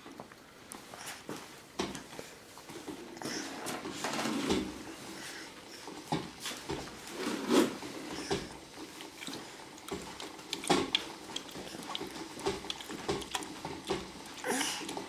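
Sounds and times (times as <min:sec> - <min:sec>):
baby sucking and swallowing: 0:07.7 - 0:15.0.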